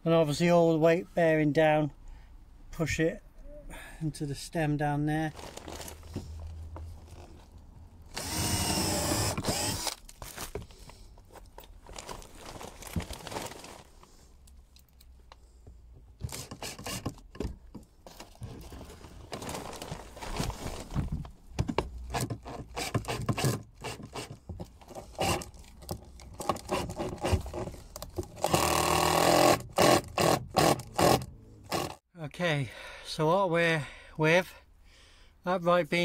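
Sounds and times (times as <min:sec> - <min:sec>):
cordless drill whining: 0:08.1 - 0:10.0, 0:16.3 - 0:17.2, 0:28.4 - 0:32.0.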